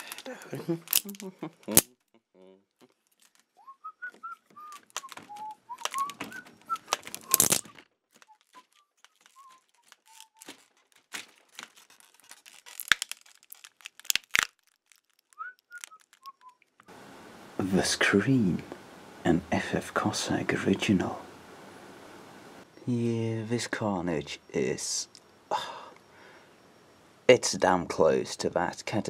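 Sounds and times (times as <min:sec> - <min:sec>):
handling clicks and rustles: 0:00.0 - 0:01.0, 0:02.9 - 0:16.9
person whistling a tune: 0:03.6 - 0:07.7.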